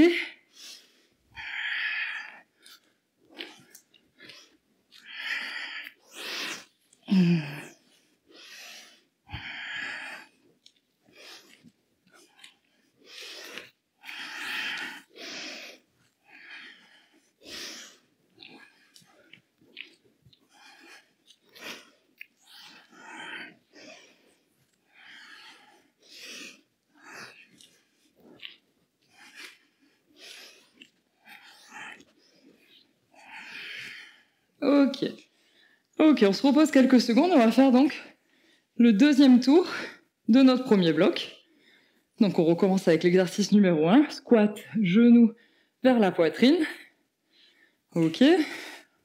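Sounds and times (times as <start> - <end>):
woman breathing hard: 12.8 - 19.3, 20.4 - 28.4.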